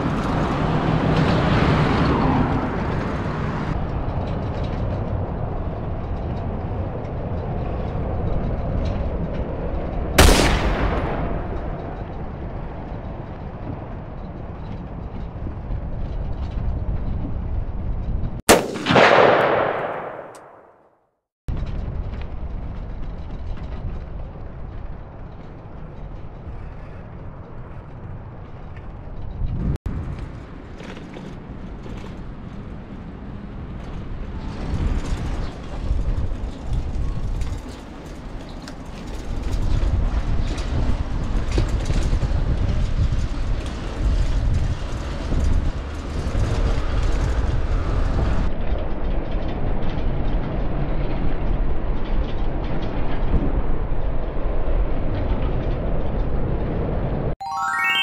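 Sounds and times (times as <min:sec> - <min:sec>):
road traffic hum: 0:00.0 - 0:18.3, 0:21.8 - 0:48.8
low rumble: 0:03.7 - 0:14.1.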